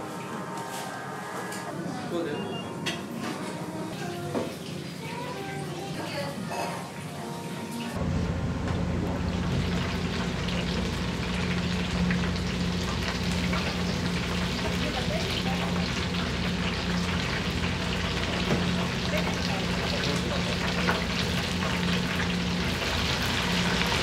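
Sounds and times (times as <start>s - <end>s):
steady low hum: 8.0s - 24.0s
shrimp sizzling in hot oil: 9.2s - 24.0s.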